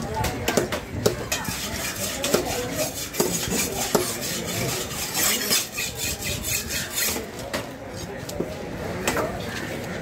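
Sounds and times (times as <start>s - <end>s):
knife scraping fish scales: 1.3s - 7.3s.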